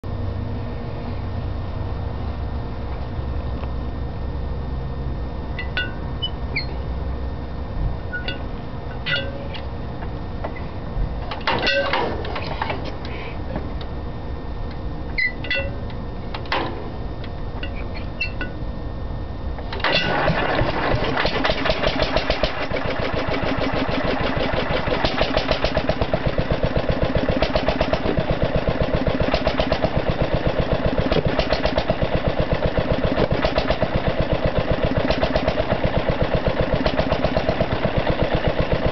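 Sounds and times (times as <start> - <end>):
stationary engine running: 19.7 - 38.9.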